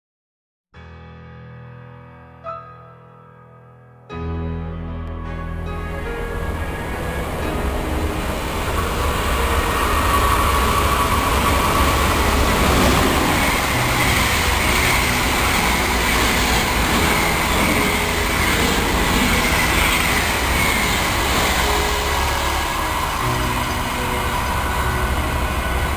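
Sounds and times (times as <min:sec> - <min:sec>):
high locomotive whine: 0:05.6 - 0:25.9
train wheels rumbling on rails: 0:06.8 - 0:25.9.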